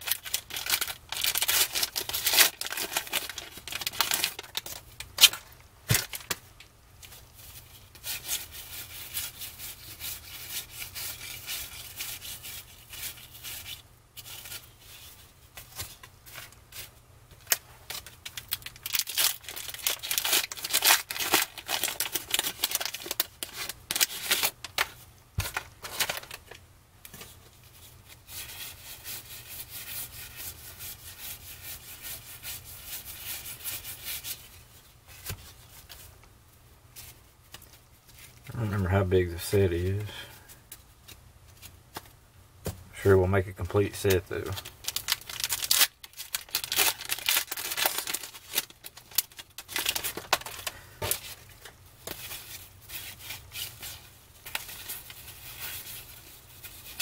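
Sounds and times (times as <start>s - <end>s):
wrapper tearing and crinkling: 0.0s - 6.4s, 17.4s - 26.6s, 43.9s - 57.0s.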